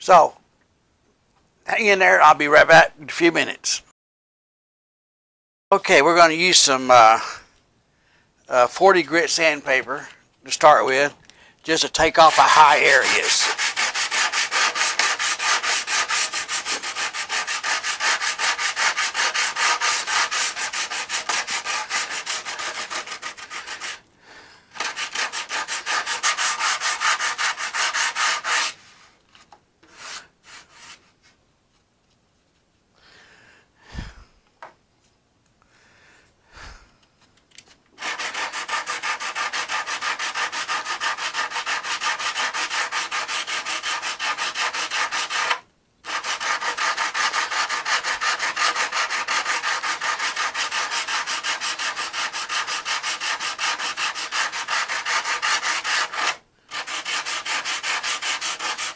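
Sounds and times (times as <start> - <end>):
sandpaper sanding: 11.9 - 24.0, 24.8 - 29.1, 38.0 - 58.9.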